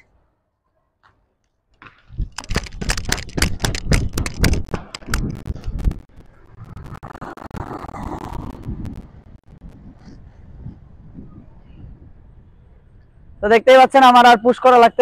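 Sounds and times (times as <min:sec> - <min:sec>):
skate wheels striking asphalt: 0:01.8 - 0:05.8.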